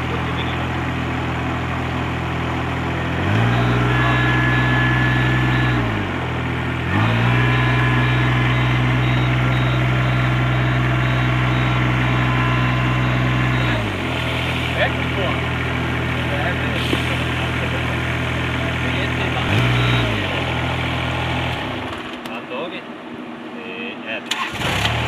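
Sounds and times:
diesel engine running: 0.0 - 22.3.

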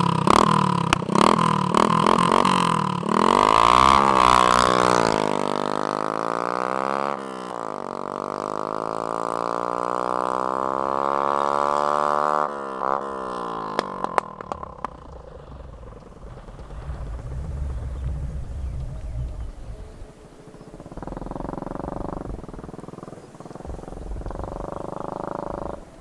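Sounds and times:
exhaust pops: 0.0 - 7.0, 12.6 - 26.0
motorcycle accelerating away: 0.0 - 26.0.

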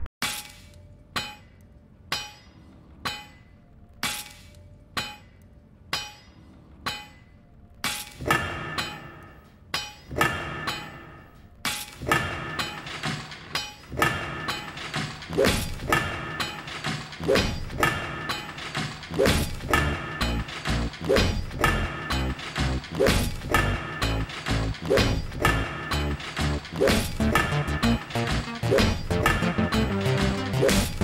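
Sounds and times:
slow metallic percussive beat: 16.1 - 31.0
pitched instrumental music: 19.2 - 31.0.

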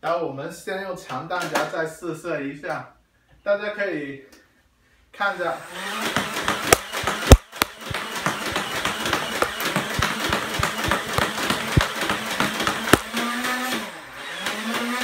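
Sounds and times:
foam darts firing rapidly: 6.2 - 13.4.

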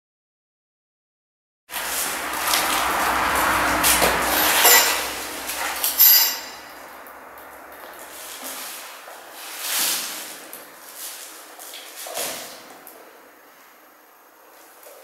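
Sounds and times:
sharp clink with ring: 4.4 - 6.7.

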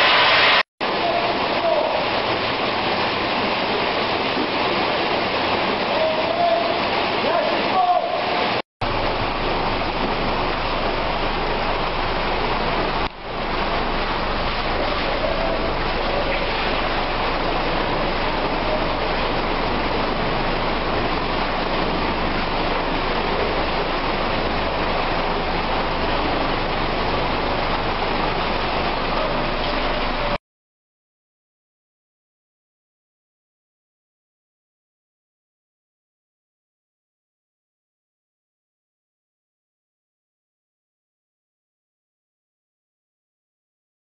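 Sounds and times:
industrial vacuum rushing: 8.3 - 30.3.

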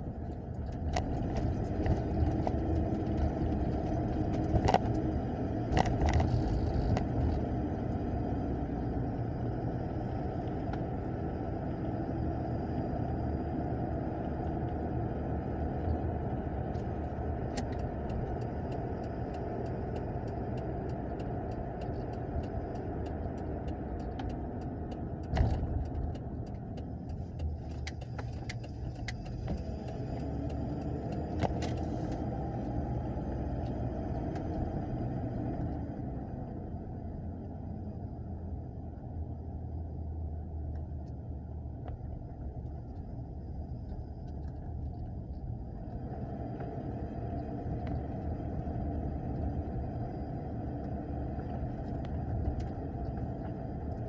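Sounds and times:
car cabin road and engine rumble: 0.0 - 54.0
light ticks: 16.7 - 34.6, 50.8 - 54.0.

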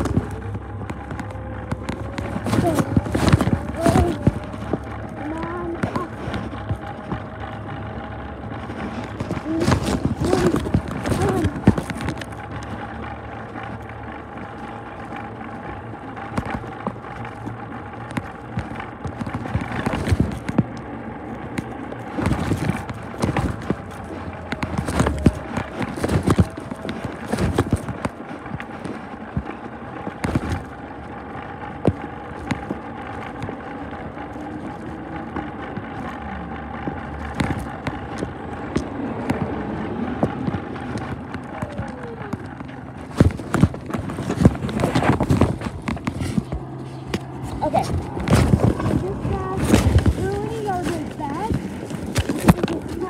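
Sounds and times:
truck running with whine: 0.0 - 53.0.

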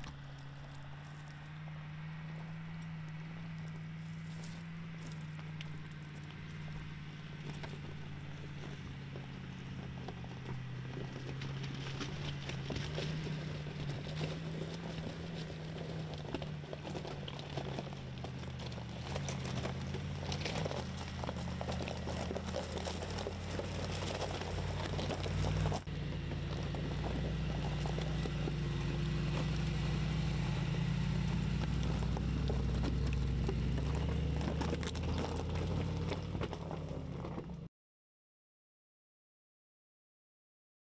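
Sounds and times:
engine running at low revs: 0.0 - 37.7
tyres crunching over gravel: 0.0 - 37.7.

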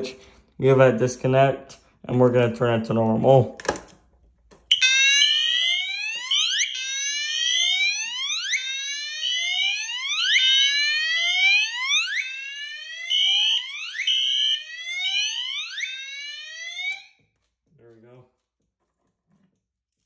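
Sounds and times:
fire alarm horn whooping: 4.7 - 17.2.

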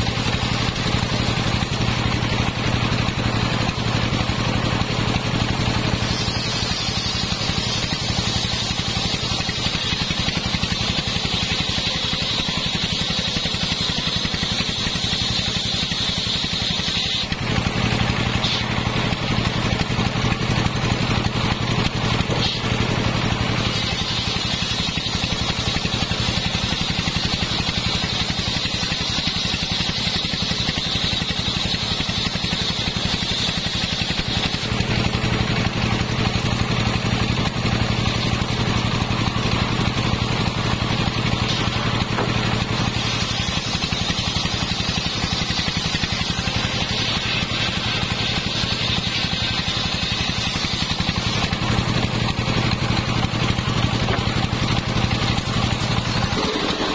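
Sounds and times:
engine running with rapid pulses: 0.0 - 56.9
circular saw ripping boards: 41.1 - 56.9.

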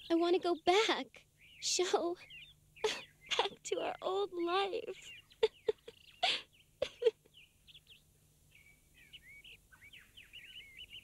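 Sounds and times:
birds chirping: 0.0 - 11.0
girl sobbing: 2.8 - 3.6, 5.4 - 7.3.

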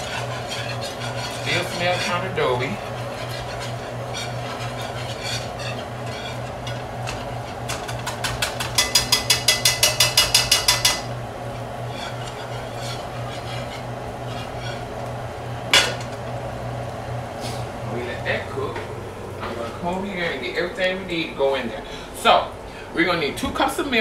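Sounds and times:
whisk tapping against pan: 0.0 - 15.0
whisk stirring in a pan: 0.0 - 16.6.

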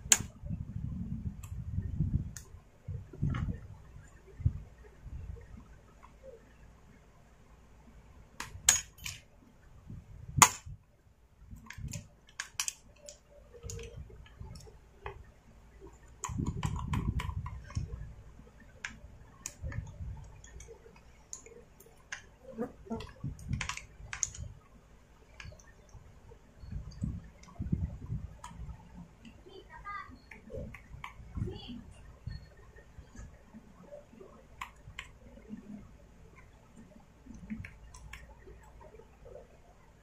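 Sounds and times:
small parts clicking: 11.5 - 15.2, 18.7 - 22.4, 23.0 - 24.6, 25.3 - 26.0, 34.6 - 39.0.

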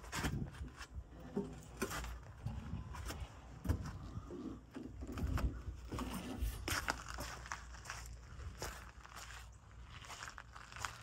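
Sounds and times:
footsteps on dirt: 0.0 - 11.0.

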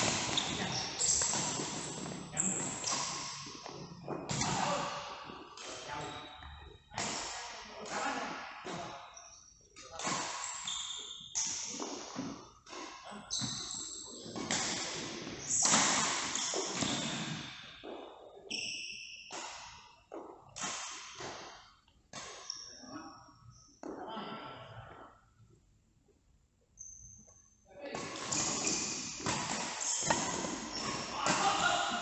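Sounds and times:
shoes squeaking on court floor: 0.0 - 7.0, 8.7 - 20.6, 26.7 - 32.0.

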